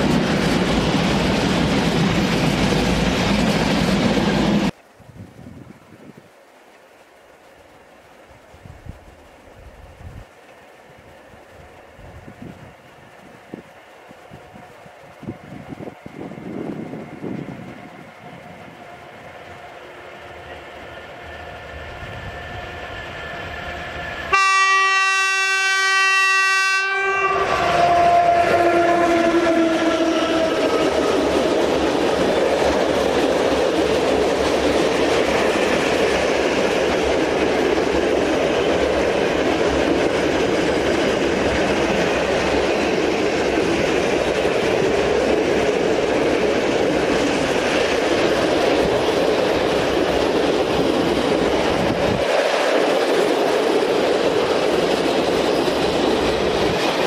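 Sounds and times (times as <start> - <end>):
locomotive passing with whine: 0.0 - 4.8, 9.0 - 57.0
locomotive horn blast: 24.3 - 30.8.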